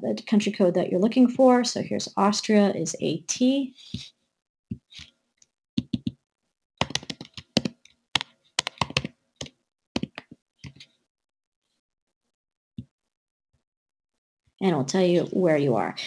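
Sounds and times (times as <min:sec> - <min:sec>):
keyboard typing clicks: 0:06.8 - 0:10.8.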